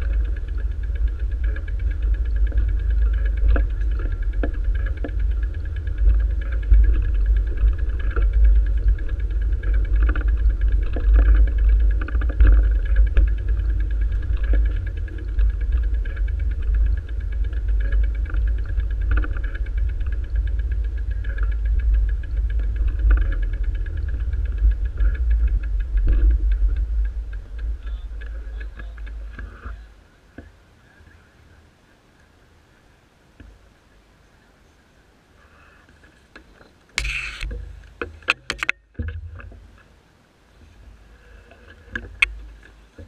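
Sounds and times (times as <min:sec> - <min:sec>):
fast steady ticking: 0:00.0 - 0:29.9
wind rumbling on microphone: 0:00.0 - 0:43.0.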